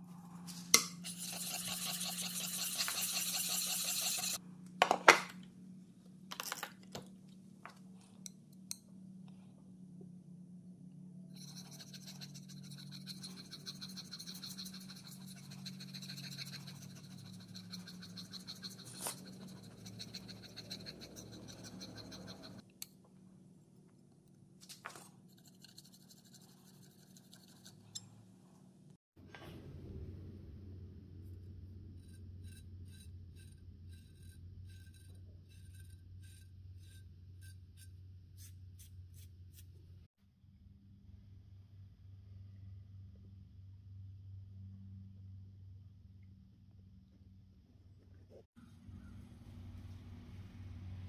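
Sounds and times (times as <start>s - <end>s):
blade scraping on wet stone: 1.0s - 4.4s, 11.4s - 22.6s.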